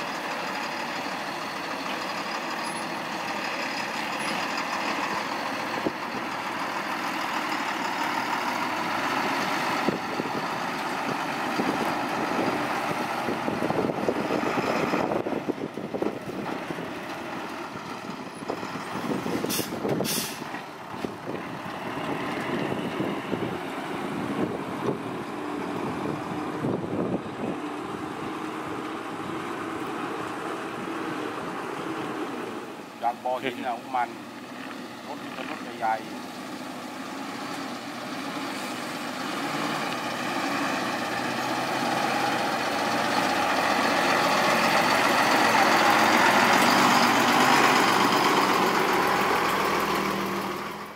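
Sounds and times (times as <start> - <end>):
diesel truck engine under load: 0.0 - 50.9
short high hisses: 19.5 - 20.5.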